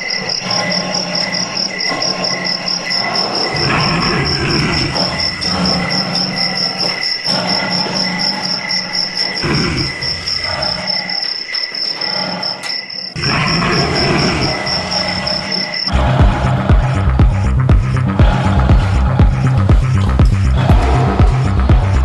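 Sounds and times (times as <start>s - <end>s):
crickets chirping: 0.0s - 22.0s
low rumbling: 15.9s - 22.0s.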